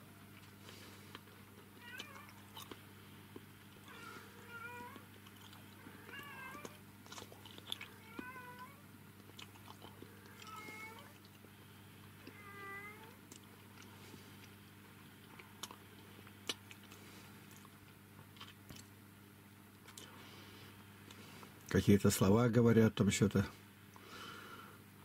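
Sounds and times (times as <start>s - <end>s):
faint low hum: 0.0s - 25.0s
kittens meowing: 1.8s - 2.6s, 3.8s - 5.1s, 5.8s - 6.8s, 7.9s - 8.8s, 10.2s - 11.2s, 12.3s - 13.2s.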